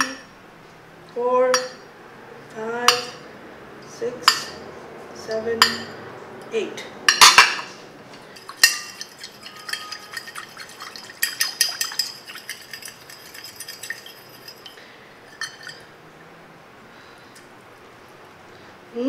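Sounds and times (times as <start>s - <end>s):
fork clinking on a ceramic plate: 8.4s - 15.9s.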